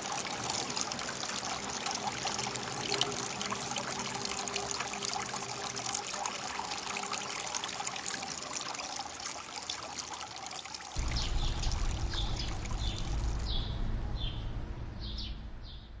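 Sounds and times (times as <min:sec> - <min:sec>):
creek water trickling over stones: 0:00.0 - 0:13.6
bird chirping: 0:11.0 - 0:16.0
low rumble: 0:11.0 - 0:16.0.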